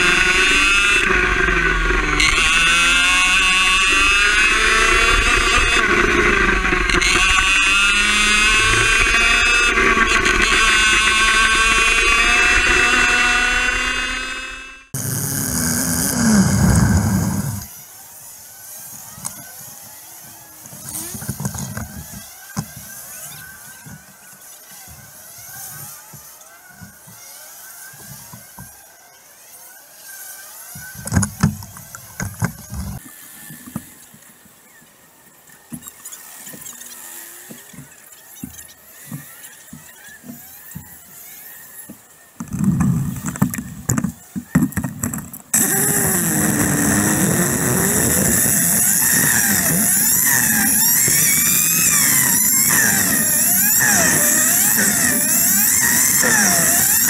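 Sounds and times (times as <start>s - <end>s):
faint passing kart engines: 0.0s - 15.0s, 45.5s - 57.0s
kart engine starting: 0.0s - 17.8s, 41.8s - 57.0s
kart engine revving on track: 0.0s - 34.0s, 36.1s - 57.0s.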